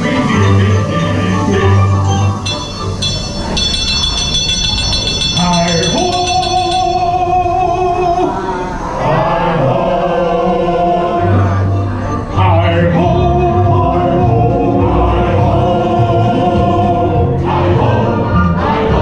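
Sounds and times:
low rumble of coaster train: 0.0 - 18.6
voices singing long held notes: 0.0 - 19.0
bell-like tinkling: 2.3 - 7.8.

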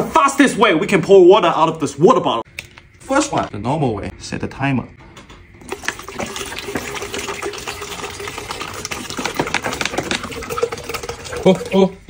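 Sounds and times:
water pouring and glugging: 5.6 - 12.0.

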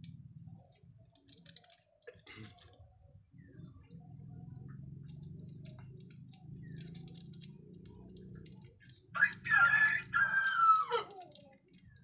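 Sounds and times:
rooster crowing: 9.2 - 11.1.

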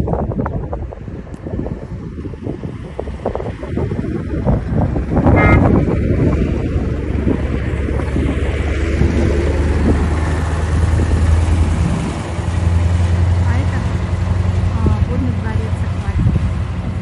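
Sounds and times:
road vehicle rumble: 0.0 - 17.0
brief high tone: 5.3 - 6.0.

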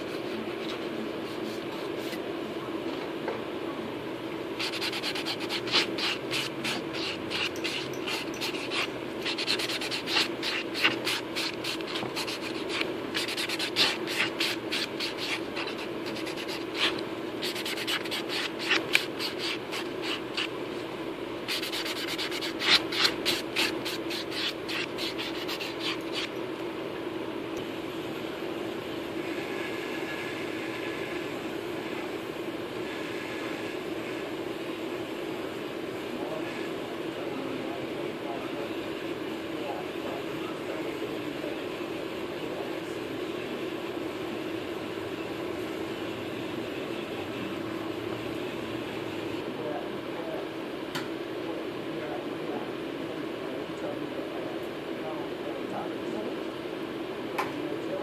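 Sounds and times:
steady low hum: 0.0 - 58.0
nail file rasping on fingernail: 4.6 - 20.5, 21.5 - 26.3.

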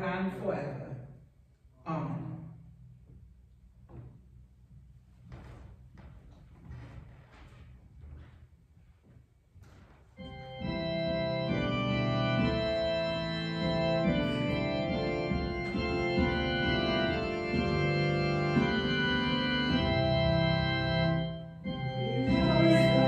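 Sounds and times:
organ chords on keyboard: 10.2 - 23.0.

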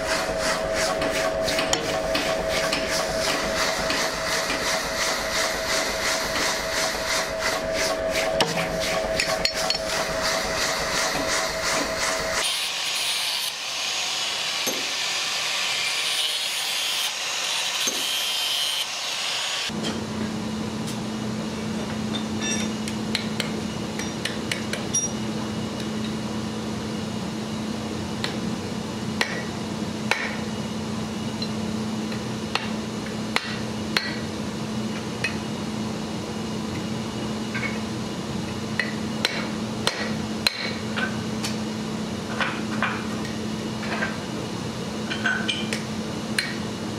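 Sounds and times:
hammer striking hot steel on anvil: 8.2 - 10.1, 14.5 - 15.0, 22.1 - 25.2, 29.2 - 29.5, 30.1 - 30.4, 32.5 - 34.3, 38.8 - 41.6, 45.2 - 46.6.

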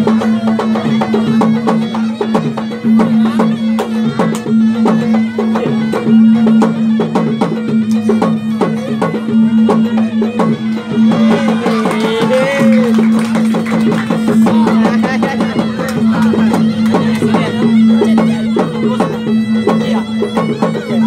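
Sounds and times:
drums played in rapid strokes: 0.0 - 21.0.

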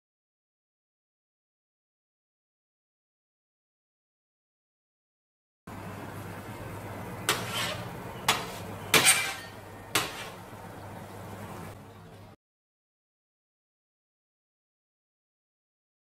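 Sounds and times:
oven humming: 5.7 - 12.4
spatula clinking on metal pan: 7.3 - 10.3.

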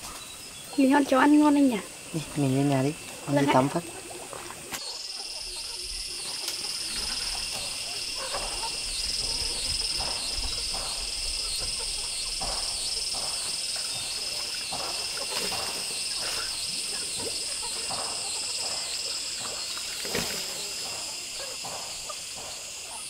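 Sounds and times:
high-pitched insect chirring: 4.8 - 23.0.

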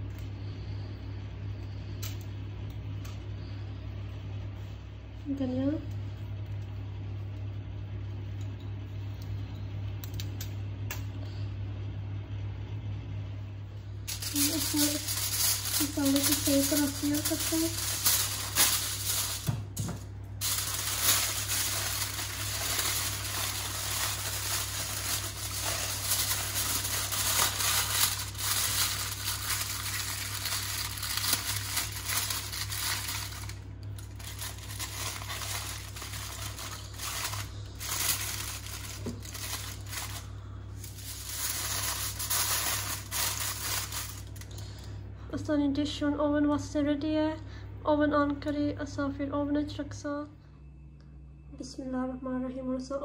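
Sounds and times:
aluminium foil crinkling: 14.1 - 44.9.

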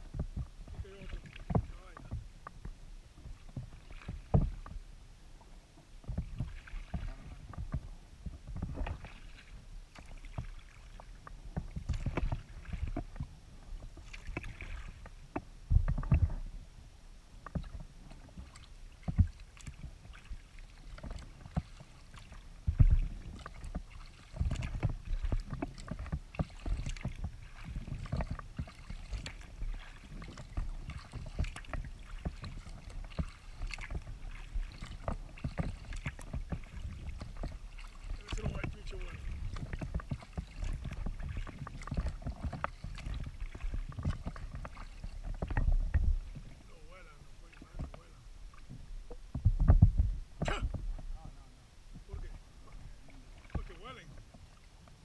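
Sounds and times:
paddle splashing water: 0.0 - 55.0
dull knocks on kayak hull: 3.2 - 4.8, 14.0 - 16.5, 22.6 - 46.6, 48.6 - 51.1.

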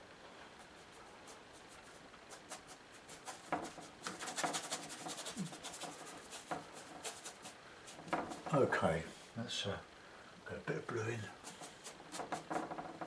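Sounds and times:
paint scrubbed onto board: 0.6 - 8.6, 11.4 - 13.0.

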